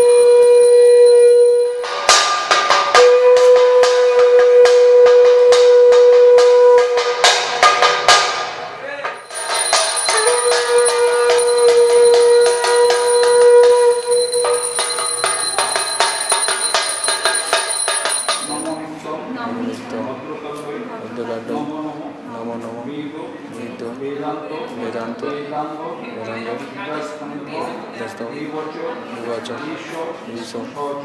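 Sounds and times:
conch shell blown: 0:00.0 - 0:02.1, 0:02.9 - 0:07.3, 0:10.1 - 0:14.7
hand bell ringing: 0:00.0 - 0:02.2, 0:09.2 - 0:18.8
struck metal ringing: 0:09.2 - 0:18.8.

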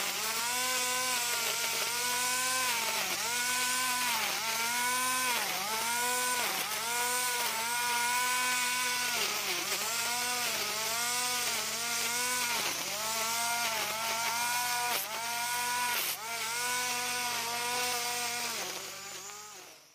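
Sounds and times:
grass trimmer motor whining: 0:00.0 - 0:19.9.

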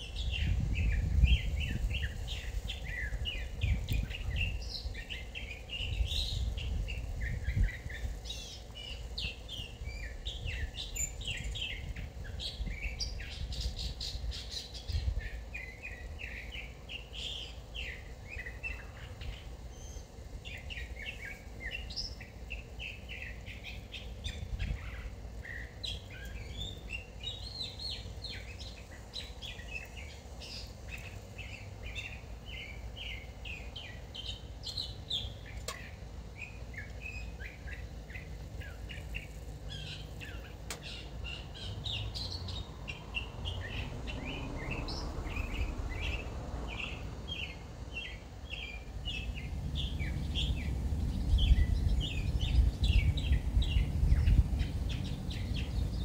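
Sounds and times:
songbirds chirping and trilling: 0:00.0 - 0:56.0
low rumble: 0:49.0 - 0:56.0.

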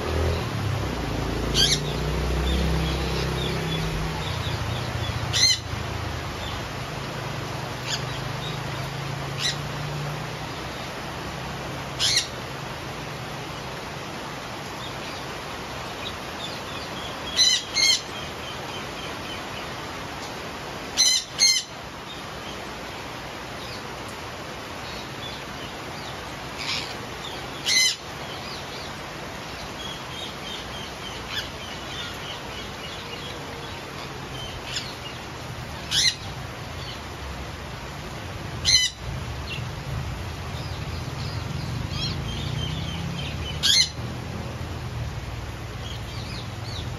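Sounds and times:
steady rain hiss: 0:00.0 - 0:46.9
parakeets screeching: 0:01.5 - 0:05.7, 0:09.4 - 0:09.6, 0:12.0 - 0:12.4, 0:16.8 - 0:18.2, 0:21.0 - 0:21.7, 0:26.6 - 0:28.6, 0:34.0 - 0:35.2, 0:35.8 - 0:36.3, 0:38.6 - 0:39.6, 0:41.2 - 0:44.0.

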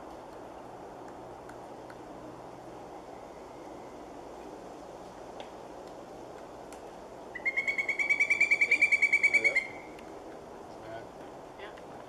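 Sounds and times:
woodpecker calling: 0:07.3 - 0:10.0.

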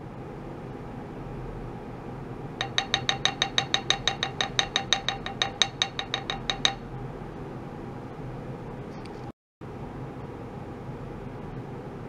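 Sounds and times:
mallet tapping metal plate: 0:02.6 - 0:06.9.

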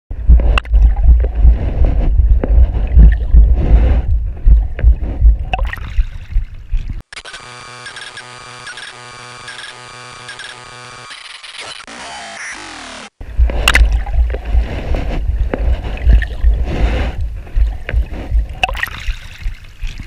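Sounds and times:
low thumping and rumble: 0:00.1 - 0:07.0, 0:13.2 - 0:20.0.

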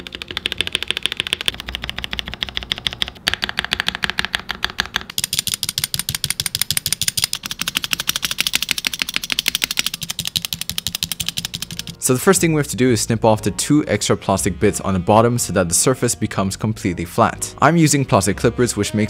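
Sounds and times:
plastic keyboard key clacks: 0:00.0 - 0:12.0.

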